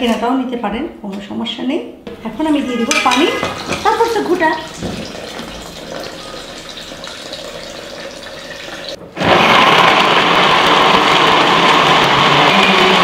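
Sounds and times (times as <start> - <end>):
water poured into blender jar: 3.4 - 9.0
electric blender running: 3.5 - 13.0.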